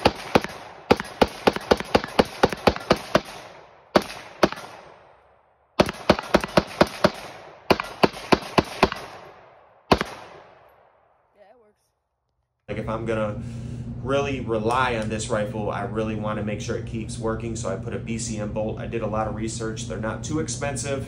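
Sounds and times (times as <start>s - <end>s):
rifle shots echoing: 0.0s - 11.0s.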